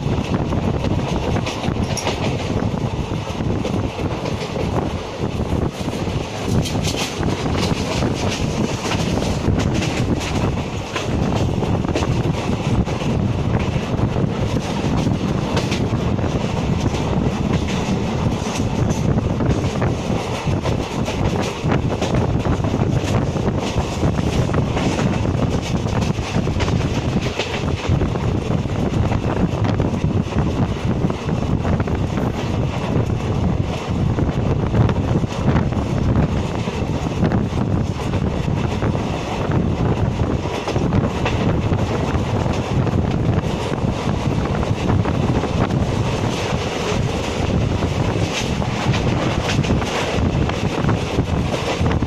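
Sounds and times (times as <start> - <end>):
wind buffeting the microphone: 0.0 - 52.0.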